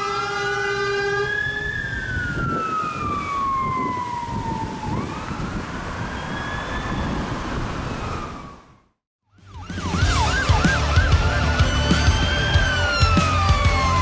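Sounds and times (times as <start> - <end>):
engine and traffic rumble: 0.0 - 9.0
fire engine siren wailing: 0.0 - 14.0.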